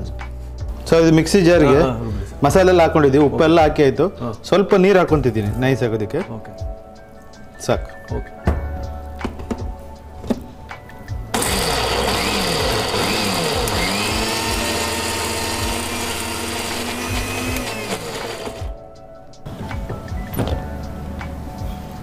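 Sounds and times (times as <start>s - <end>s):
mixer grinder motor grinding: 11.3s - 18.8s.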